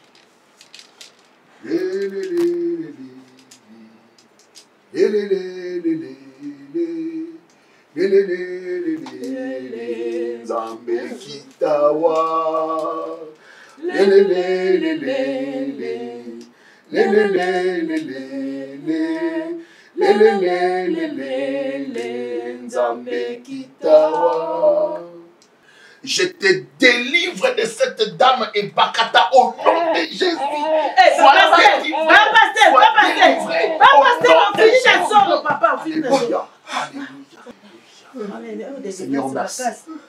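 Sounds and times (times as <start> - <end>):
man singing unaccompanied: 1.6 - 4.2, 4.9 - 25.4, 29.0 - 37.0.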